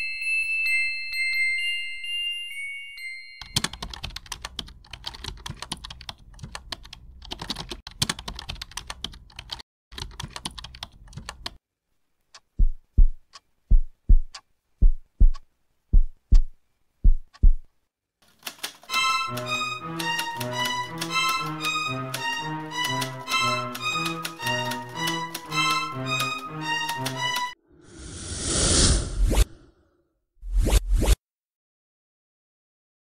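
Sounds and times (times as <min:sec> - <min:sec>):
fast typing on keyboard: 0:03.5 - 0:11.6, 0:18.2 - 0:27.5
deep double thumps: 0:12.5 - 0:17.7.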